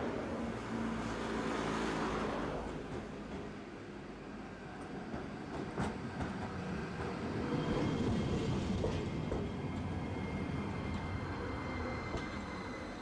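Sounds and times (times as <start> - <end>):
streetcar wheels rumbling on rail: 0.0 - 13.0.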